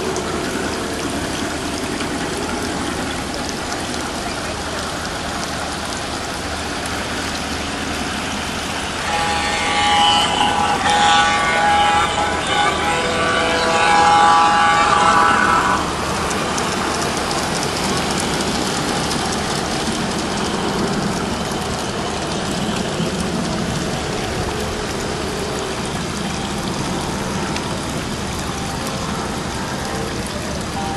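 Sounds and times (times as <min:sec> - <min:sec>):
model trains rolling hiss: 0:06.2 - 0:22.6
held train horn tone: 0:08.4 - 0:30.9.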